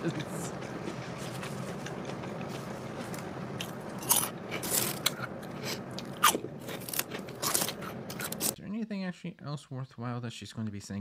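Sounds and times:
steady low hum: 0:00.0 - 0:08.6
chips crunching: 0:00.8 - 0:08.6.

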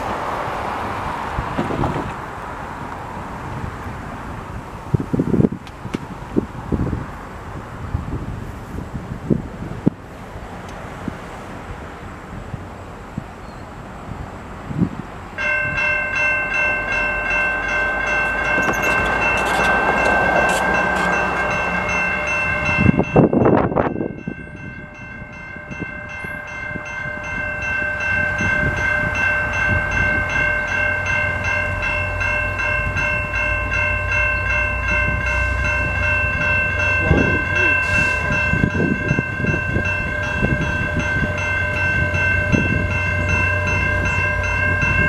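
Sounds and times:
low train rumble: 0:00.0 - 0:45.0
level crossing bell ringing: 0:15.4 - 0:45.0.

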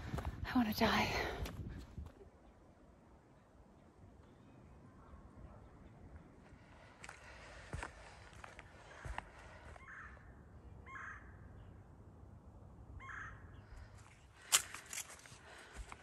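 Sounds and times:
crow cawing: 0:08.9 - 0:10.3, 0:10.9 - 0:11.4, 0:13.0 - 0:13.6.

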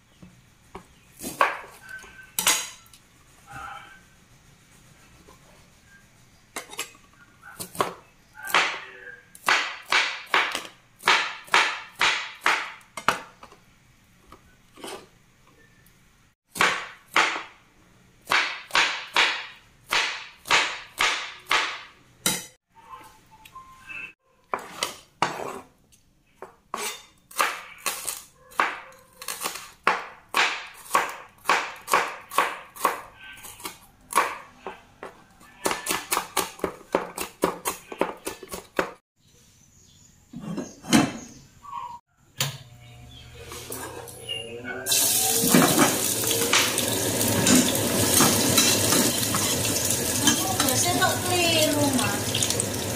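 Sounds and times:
knife chopping on plastic board: 0:09.4 - 0:13.2, 0:18.3 - 0:21.9, 0:29.4 - 0:33.0, 0:33.6 - 0:39.0.

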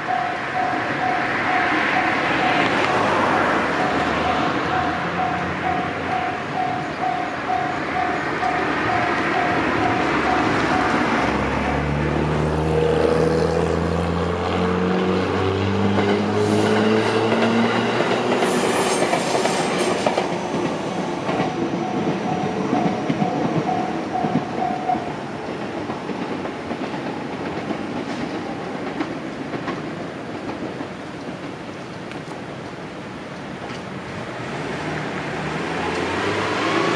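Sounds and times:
level crossing warning bell: 0:00.0 - 0:12.0, 0:21.4 - 0:25.2
heavy rolling rumble of train: 0:00.0 - 0:36.9.

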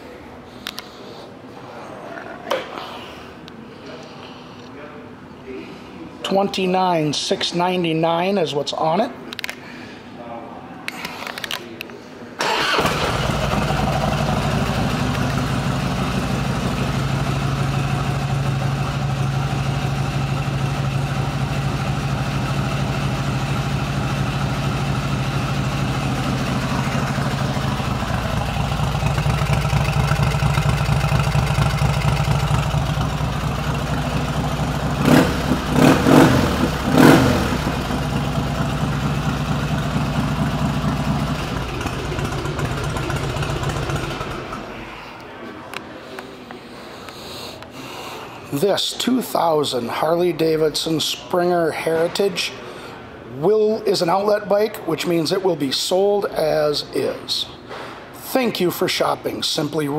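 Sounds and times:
motorcycle throttle blips: 0:12.4 - 0:44.8
motorcycle engine idling: 0:12.5 - 0:44.9.

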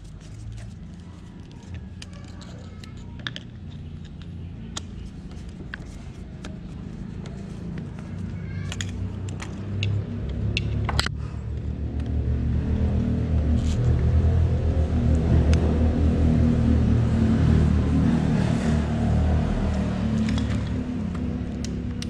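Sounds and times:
clicks and taps of handled parts: 0:00.2 - 0:12.2, 0:20.1 - 0:22.0.

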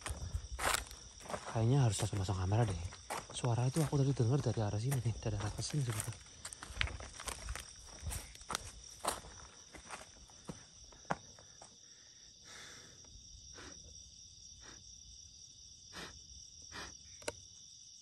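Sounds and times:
footsteps: 0:00.0 - 0:11.2
crickets chirping: 0:00.0 - 0:18.0.

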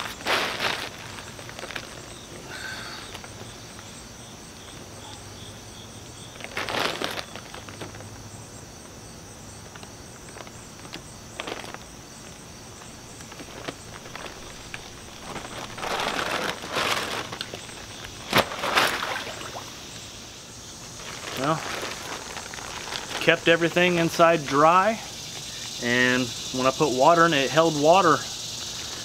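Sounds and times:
rustling pack liner: 0:00.0 - 0:03.9, 0:06.3 - 0:08.2, 0:09.7 - 0:19.7, 0:20.8 - 0:23.6
insects chirring: 0:00.0 - 0:29.0.

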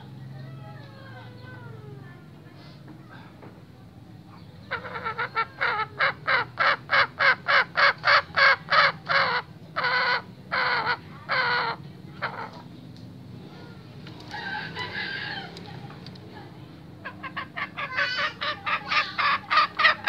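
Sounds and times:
junglefowl cackling calls: 0:04.6 - 0:12.6, 0:14.2 - 0:15.8, 0:17.0 - 0:20.0.

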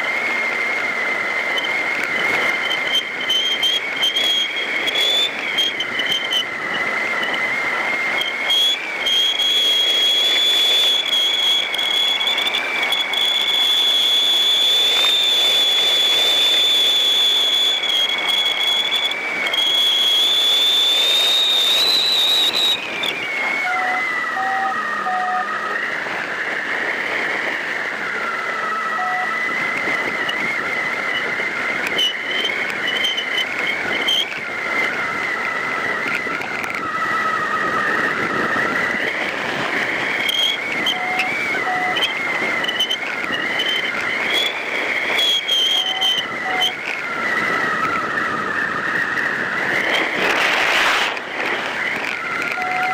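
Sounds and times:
whistling tones: 0:00.0 - 0:52.9
faint short beeps: 0:23.8 - 0:25.7
wind rushing: 0:47.2 - 0:52.5.

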